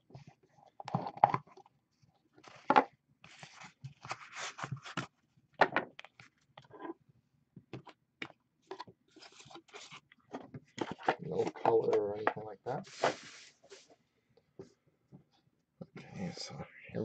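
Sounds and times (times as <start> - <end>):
cardboard and plastic rustling: 2.4 - 5.2, 8.7 - 13.9.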